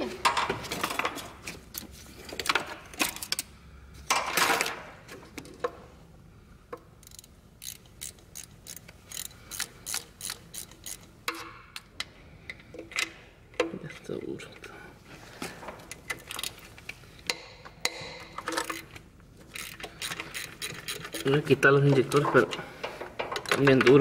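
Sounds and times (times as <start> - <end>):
ratchet wrench clicking: 7.0 - 11.4, 19.5 - 21.3.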